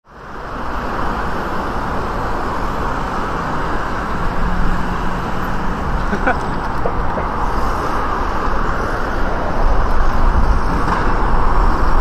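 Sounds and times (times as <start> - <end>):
city traffic noise: 0.0 - 12.0.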